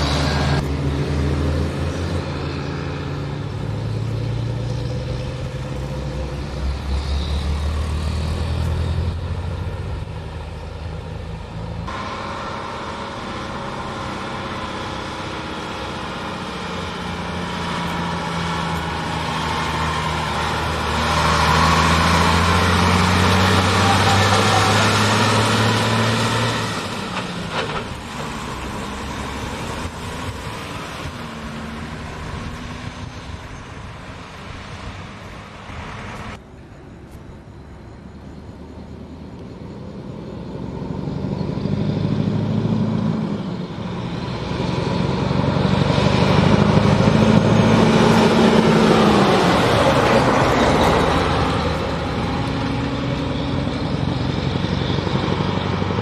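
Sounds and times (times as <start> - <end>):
diesel trucks driving past: 0.0 - 56.0.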